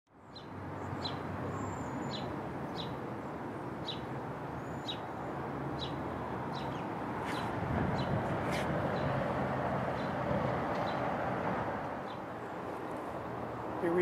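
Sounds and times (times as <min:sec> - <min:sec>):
bird chirping: 0:00.2 - 0:03.0, 0:03.8 - 0:08.2.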